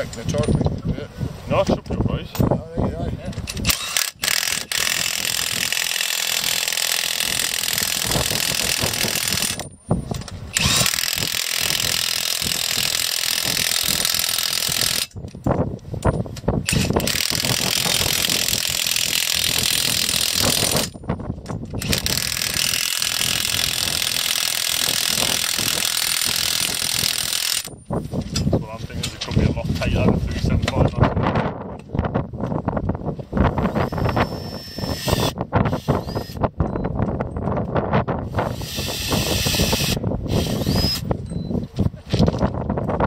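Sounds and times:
cordless impact wrench running: 3.5 - 9.7, 10.5 - 15.2, 16.7 - 21.0, 21.8 - 27.7, 33.6 - 36.4, 38.3 - 41.1.

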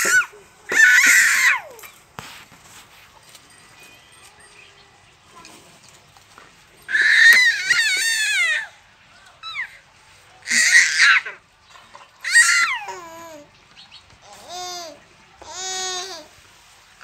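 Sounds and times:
infant squealing and babbling: 0.0 - 1.9, 6.9 - 8.7, 10.4 - 11.4, 12.2 - 13.5.

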